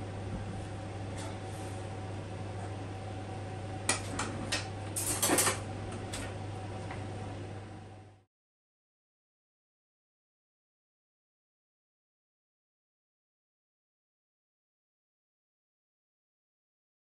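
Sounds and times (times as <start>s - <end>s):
steady low hum: 0.0s - 8.3s
dishes and utensils clattering: 3.9s - 5.6s.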